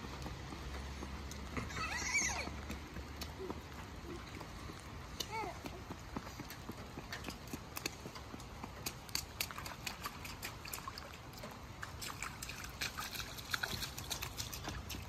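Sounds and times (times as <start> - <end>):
children splashing through puddle: 8.8 - 15.0.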